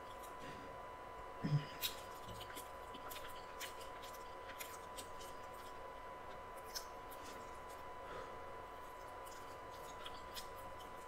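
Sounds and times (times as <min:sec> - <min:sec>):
mouth chewing crunchy food: 0:01.5 - 0:08.0, 0:08.6 - 0:11.0.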